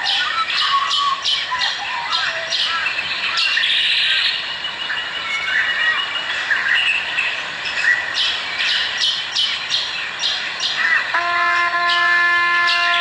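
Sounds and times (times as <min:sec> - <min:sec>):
birds chirping and squawking: 0:00.0 - 0:13.0
long steady horn-like note: 0:11.1 - 0:13.0.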